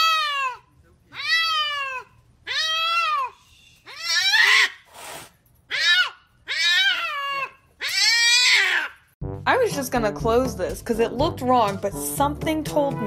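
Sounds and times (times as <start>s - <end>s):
cat meowing loudly: 0.0s - 3.3s, 3.9s - 4.8s, 5.7s - 9.0s.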